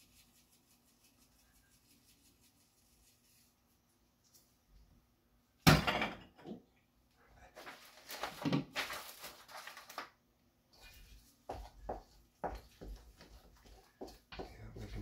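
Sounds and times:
rustling and scraping: 0:07.4 - 0:10.1.

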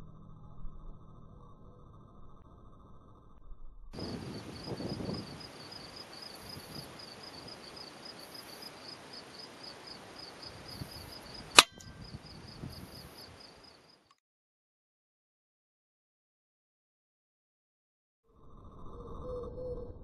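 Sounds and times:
air rifle shot: 0:11.5 - 0:12.0.

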